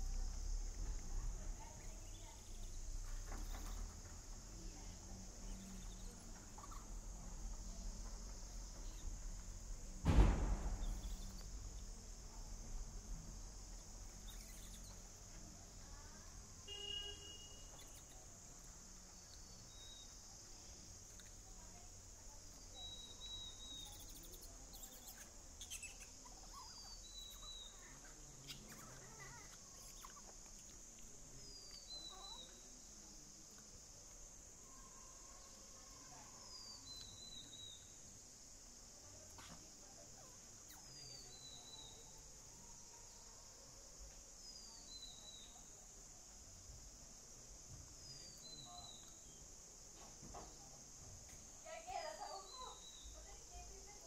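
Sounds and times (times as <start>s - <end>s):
insects buzzing: 0.0s - 54.0s
bird chirps: 5.4s - 7.0s, 10.2s - 11.5s, 14.1s - 15.1s, 16.7s - 18.3s, 22.6s - 30.8s, 40.6s - 42.1s
low thump: 8.8s - 13.3s.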